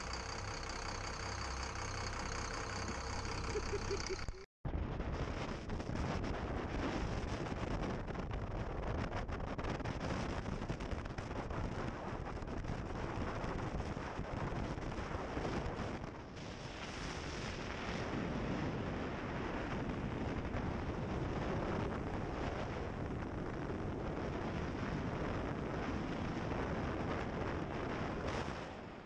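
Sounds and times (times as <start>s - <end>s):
boat engine: 0.0s - 4.5s
wind buffeting microphone: 4.7s - 29.0s.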